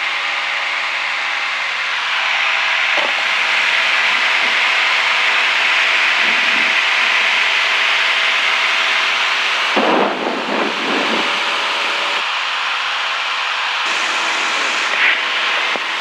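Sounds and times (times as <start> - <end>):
propeller aircraft engine droning: 0.0 - 16.0
wind rushing: 9.8 - 11.6.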